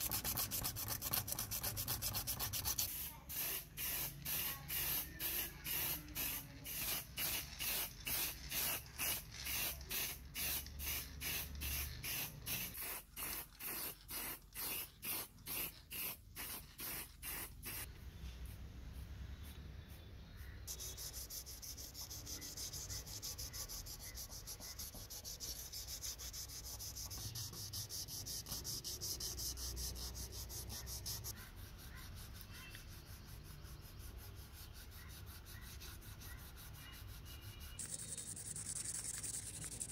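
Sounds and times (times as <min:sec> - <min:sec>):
sandpaper rubbing: 0:00.0 - 0:17.9, 0:20.7 - 0:39.9
spray can rattling: 0:00.0 - 0:17.9, 0:37.8 - 0:39.9
spray paint hissing: 0:00.0 - 0:17.9, 0:20.6 - 0:39.9.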